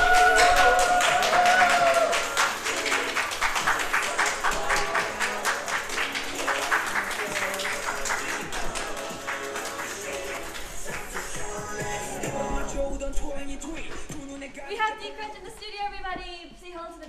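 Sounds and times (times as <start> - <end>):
people clapping: 0.0 - 12.1
background music: 0.0 - 15.6.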